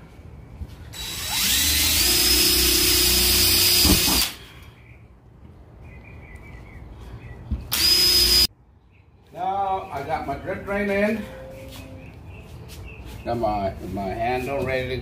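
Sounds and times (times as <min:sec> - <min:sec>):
cordless drill whining on sheet metal: 0:01.0 - 0:04.4, 0:07.7 - 0:08.5.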